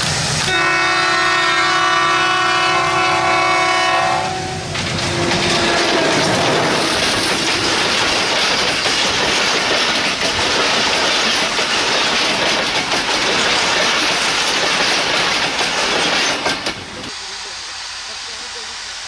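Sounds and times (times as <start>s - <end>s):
diesel locomotive passing: 0.0s - 19.0s
train coaches rumbling: 0.0s - 19.0s
wheels clattering over rail joints: 4.7s - 17.1s.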